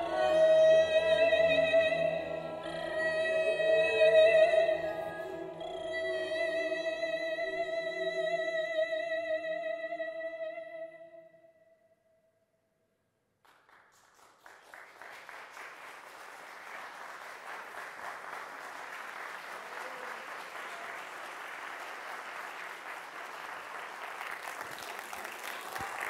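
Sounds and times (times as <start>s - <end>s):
audience applauding: 13.5s - 26.0s.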